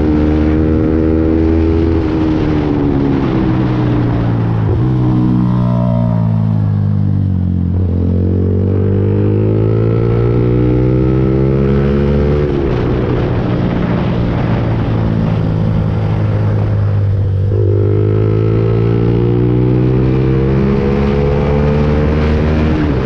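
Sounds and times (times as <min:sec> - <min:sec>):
motorcycle engine running: 0:03.6 - 0:23.0.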